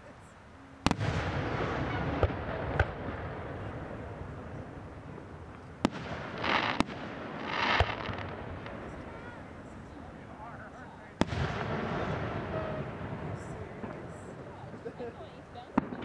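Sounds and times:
firework hiss: 0:00.8 - 0:14.9
firework shells bursting: 0:05.4 - 0:09.1.

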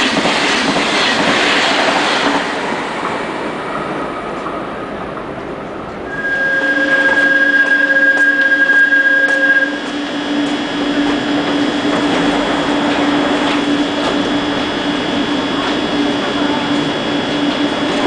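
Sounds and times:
low hum of train equipment: 0:00.0 - 0:18.0
train brake squeal: 0:06.1 - 0:09.8.

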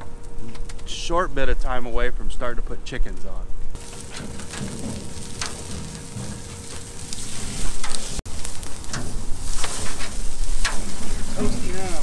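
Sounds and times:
fat sizzling on a grill: 0:03.8 - 0:12.0.

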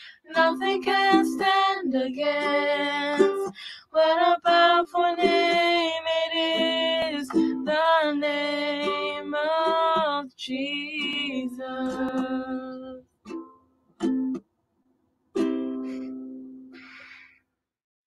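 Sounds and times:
two voices singing: 0:00.2 - 0:13.0
ukulele strumming: 0:00.3 - 0:14.4, 0:15.4 - 0:16.7.

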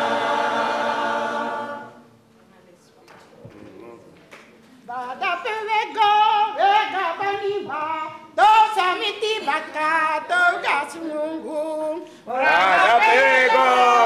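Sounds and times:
women singing unaccompanied: 0:04.9 - 0:13.2.

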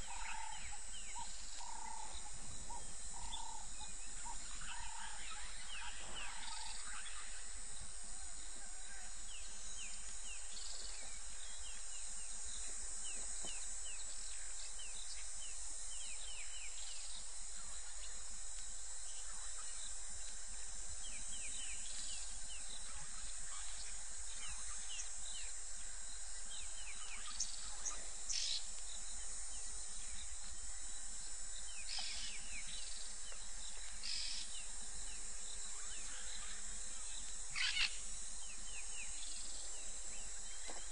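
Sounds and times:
faint electrical hum: 0:00.0 - 0:40.9
high-pitched insect drone: 0:00.0 - 0:40.9.

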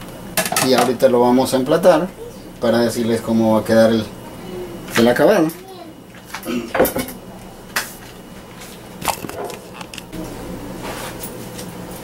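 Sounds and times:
dishes knocking and clinking: 0:06.6 - 0:07.2.

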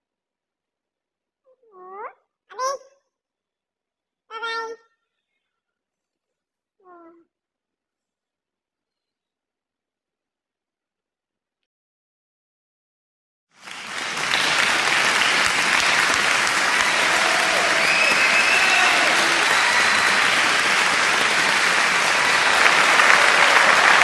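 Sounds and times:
crowd applause: 0:13.6 - 0:24.0.

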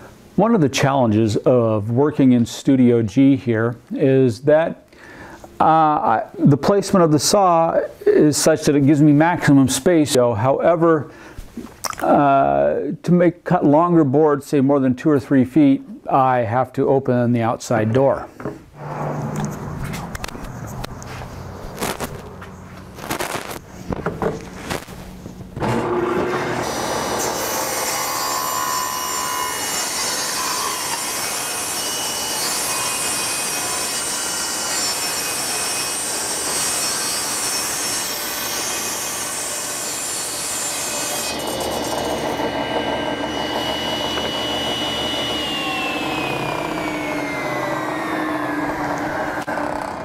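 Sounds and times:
saw blade whine winding down: 0:18.8 - 0:21.1, 0:38.2 - 0:50.0
table saw cutting wood: 0:18.8 - 0:22.3, 0:25.6 - 0:50.0.

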